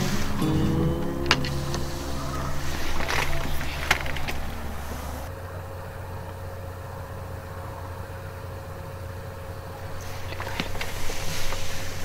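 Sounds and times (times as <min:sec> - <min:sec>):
faint high tone: 0:00.0 - 0:04.2
steady low hum: 0:00.0 - 0:10.4.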